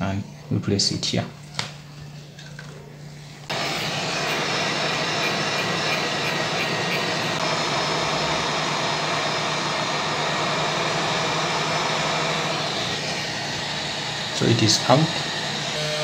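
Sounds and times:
hot air station blowing: 3.5 - 16.0.

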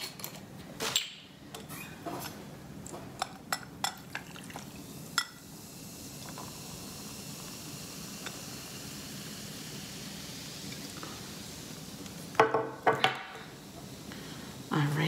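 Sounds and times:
juice pouring: 3.8 - 14.6
steady fizz: 3.8 - 15.0.

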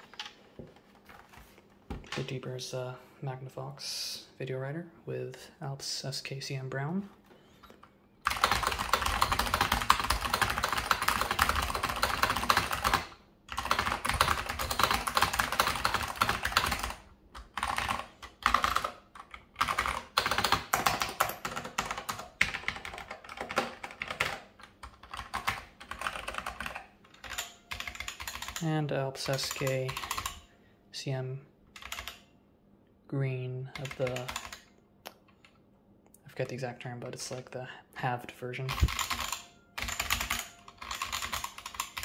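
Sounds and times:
keyboard typing: 7.6 - 30.5, 31.8 - 32.3, 33.7 - 35.6, 38.7 - 42.0.

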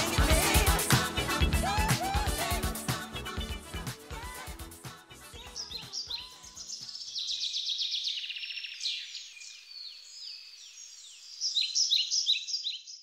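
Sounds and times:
music: 0.0 - 6.8
songbirds singing: 5.4 - 13.0.

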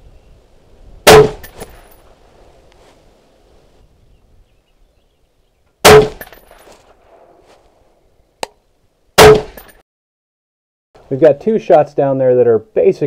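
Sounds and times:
rifle shot: 1.1 - 1.6, 5.8 - 6.4, 9.2 - 9.7.

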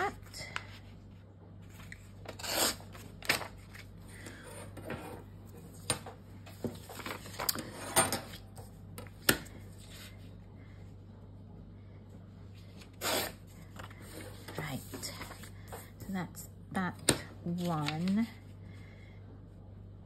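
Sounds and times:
paper rustling and crinkling: 1.6 - 4.0, 6.4 - 7.7, 12.6 - 16.0, 17.5 - 18.4
paper tearing: 2.2 - 3.8, 12.9 - 13.4.

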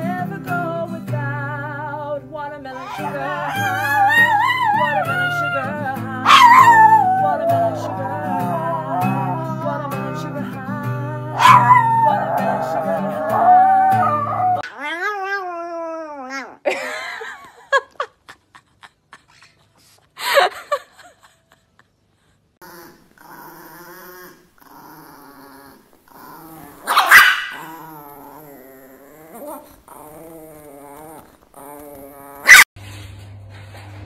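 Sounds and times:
small dogs whining and yipping: 2.8 - 9.8, 11.4 - 16.7, 26.9 - 27.8, 31.7 - 32.7
dog growling: 2.8 - 10.4, 11.1 - 16.7, 22.6 - 32.7
dog yapping sharply: 26.9 - 27.6, 32.4 - 32.6.

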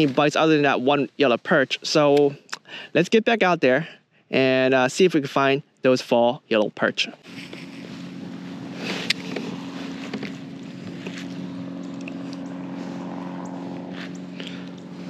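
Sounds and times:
boat motor humming: 7.2 - 15.0.

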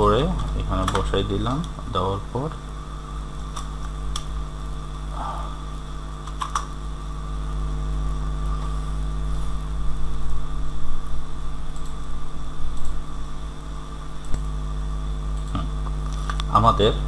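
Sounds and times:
electrical hum: 0.0 - 17.0
computer keyboard keystrokes: 6.2 - 6.7.

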